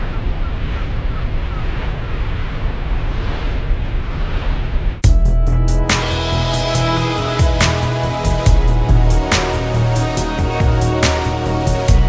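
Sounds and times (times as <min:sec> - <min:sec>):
background music: 0:05.0 - 0:12.0.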